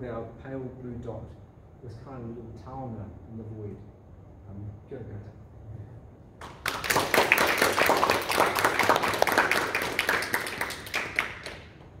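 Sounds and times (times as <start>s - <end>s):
audience applauding: 6.4s - 11.9s.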